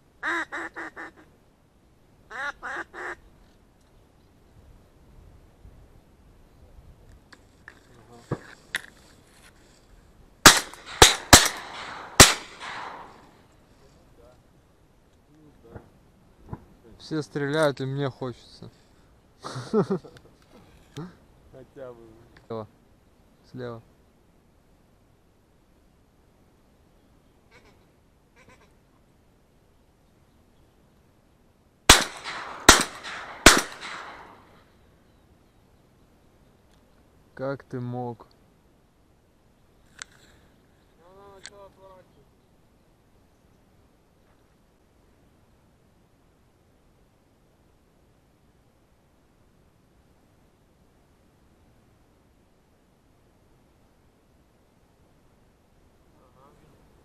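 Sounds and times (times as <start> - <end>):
shotgun shots echoing: 10.4 - 13.4, 31.9 - 34.6.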